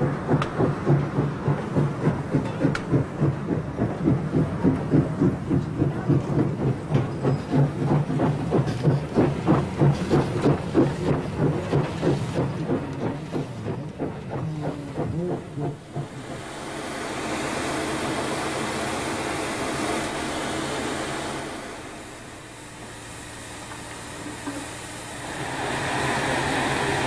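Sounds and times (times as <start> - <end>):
steam locomotive passing: 0.0 - 27.0.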